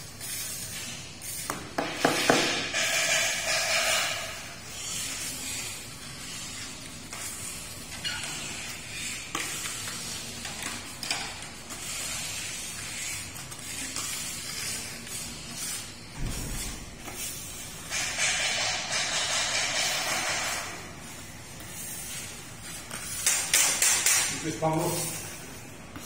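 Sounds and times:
grout float scraping tiles: 0.3 - 20.8.

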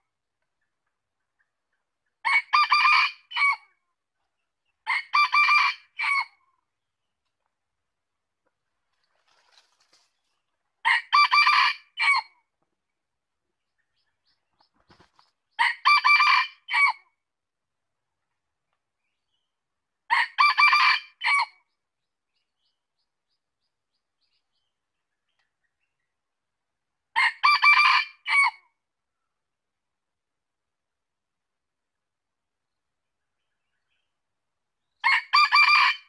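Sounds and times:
rooster crowing: 27.2 - 28.6, 35.1 - 36.0.

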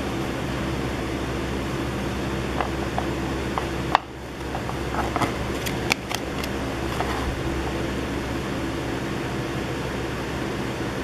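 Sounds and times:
mechanical room hum: 0.0 - 11.0
trading cards clicking: 2.6 - 7.3.

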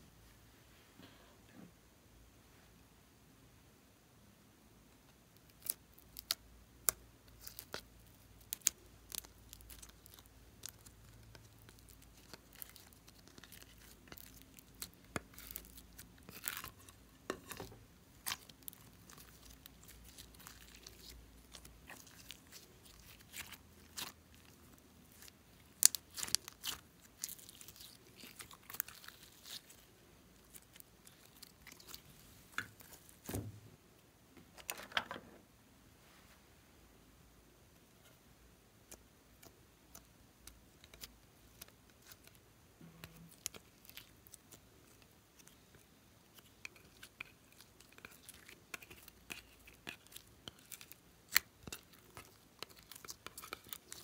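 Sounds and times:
slime popping and crackling: 5.4 - 33.3, 43.0 - 54.0.

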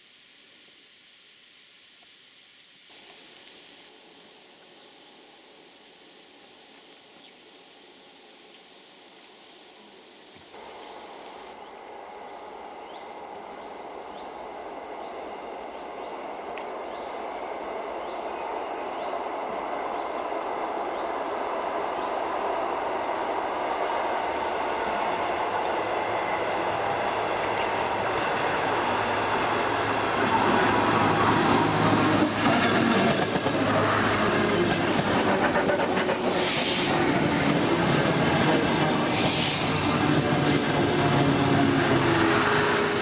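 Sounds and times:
train rumble: 10.5 - 43.0.

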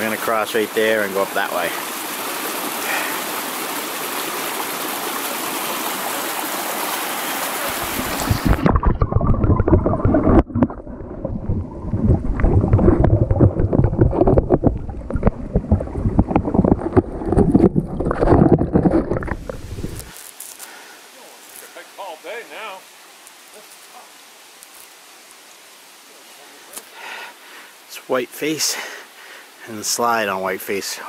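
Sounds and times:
brook rushing over rocks: 0.0 - 20.3
underwater bubbling rush: 1.8 - 20.1.

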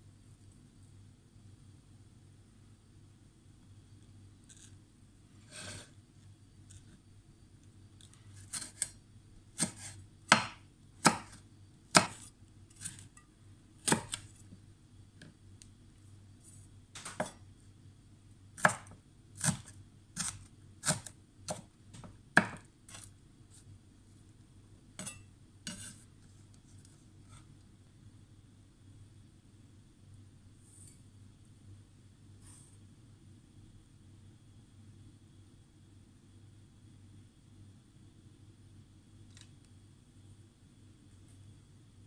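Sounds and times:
knife chopping on wooden board: 8.5 - 8.9, 9.6 - 13.0, 13.8 - 14.3, 17.1 - 17.4, 18.6 - 23.1, 25.0 - 25.9.

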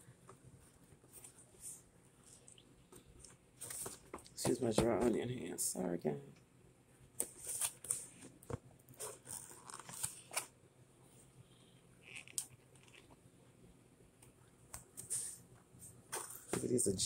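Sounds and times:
cardboard and plastic packaging rustling: 3.6 - 5.2.

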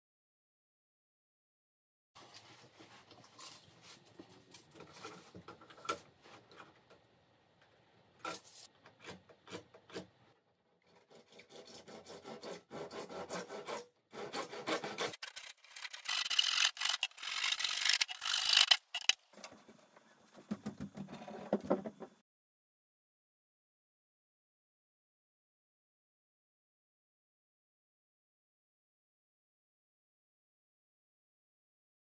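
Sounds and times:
handsaw rasping through plastic: 10.9 - 19.2.

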